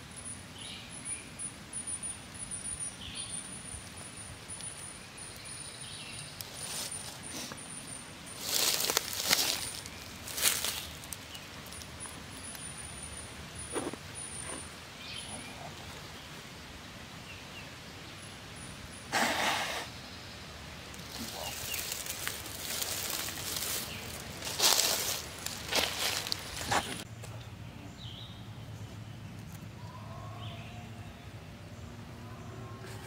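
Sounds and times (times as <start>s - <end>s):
clothing and gear rustling: 21.0s - 27.0s.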